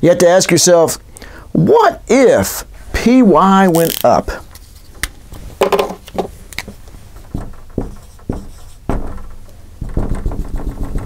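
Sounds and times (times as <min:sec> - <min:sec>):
marker writing on whiteboard: 0:06.6 - 0:09.0, 0:09.8 - 0:11.0.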